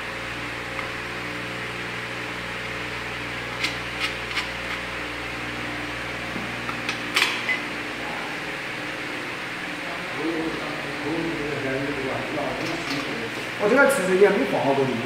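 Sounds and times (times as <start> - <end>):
fan-like hum and hiss: 0.0 - 15.0.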